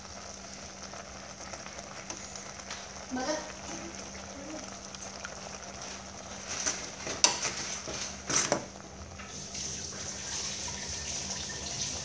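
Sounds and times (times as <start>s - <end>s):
spoon knocking and scraping pot: 6.6s - 8.7s
simmering hiss: 9.2s - 12.0s.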